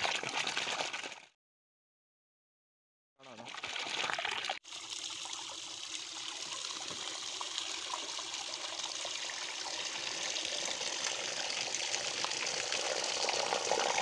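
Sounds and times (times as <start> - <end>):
water splashing onto ground: 0.0 - 1.2
water gushing from pipe: 0.0 - 1.3, 3.3 - 14.0.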